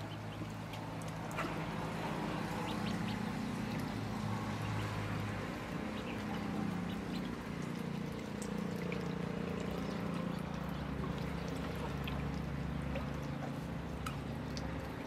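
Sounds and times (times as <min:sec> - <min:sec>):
ducklings peeping: 0:00.0 - 0:00.8, 0:02.4 - 0:07.8
ducklings paddling in water: 0:00.0 - 0:15.0.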